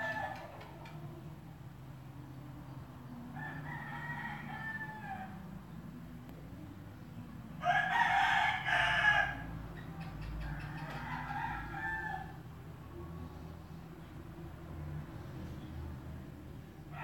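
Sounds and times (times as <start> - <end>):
rooster crowing: 0.0 - 0.6, 3.4 - 5.4, 7.6 - 9.5, 10.5 - 12.4.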